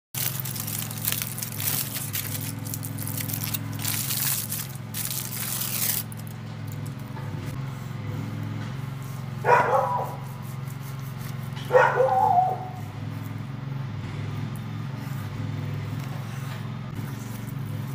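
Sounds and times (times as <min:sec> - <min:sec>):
aluminium foil crinkling: 0:00.1 - 0:06.8.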